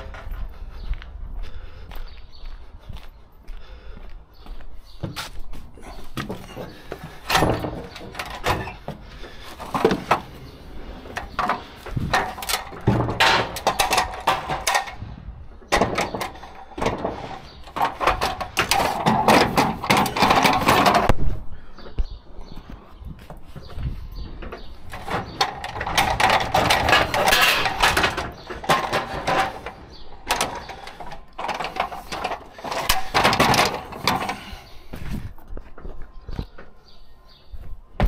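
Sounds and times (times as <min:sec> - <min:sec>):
scraping and rustling: 0:05.0 - 0:21.2, 0:23.2 - 0:35.4
metal cages clanking and rattling: 0:05.8 - 0:21.1, 0:23.6 - 0:34.9.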